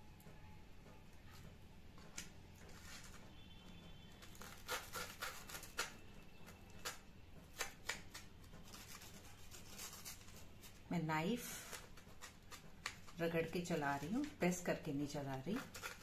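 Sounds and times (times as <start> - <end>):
knife sawing through crunchy toast: 4.3 - 6.0, 15.6 - 16.0.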